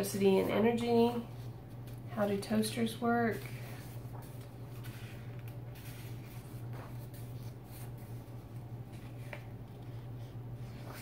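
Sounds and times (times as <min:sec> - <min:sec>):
steady low hum: 0:00.0 - 0:11.0
paper pages turning: 0:03.3 - 0:11.0.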